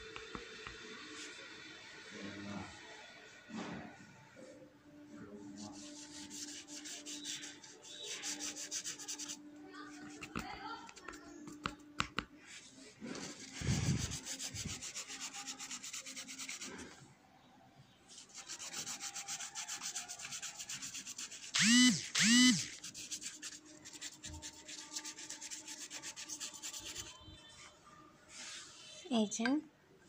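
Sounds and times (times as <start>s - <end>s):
paintbrush scrubbing on paper: 5.2s - 11.6s, 12.4s - 17.0s, 18.1s - 27.2s.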